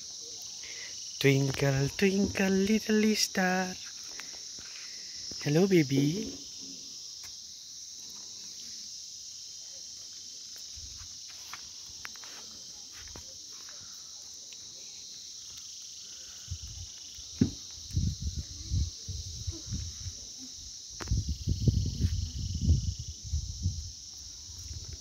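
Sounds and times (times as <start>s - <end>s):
high-pitched insect chorus: 0.0s - 25.0s
low thuds and bumps: 17.3s - 18.3s.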